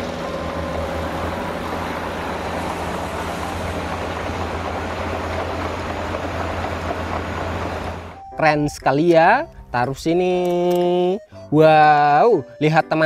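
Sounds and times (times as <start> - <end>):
diesel engine running: 0.0 - 8.4.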